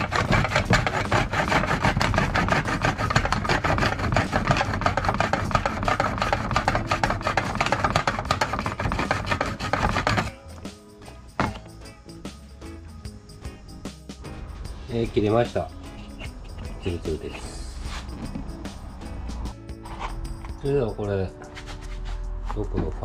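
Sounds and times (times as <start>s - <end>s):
hand saw cutting plastic: 0.0s - 10.3s
background music: 0.0s - 23.0s.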